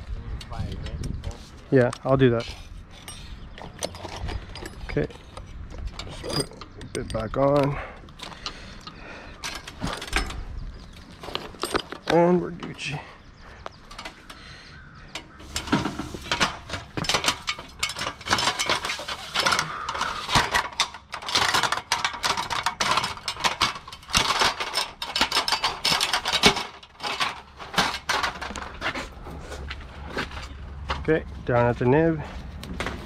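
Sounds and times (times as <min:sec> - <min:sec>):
metal ladder clinking and rattling: 0:02.2 - 0:13.1, 0:15.1 - 0:29.5.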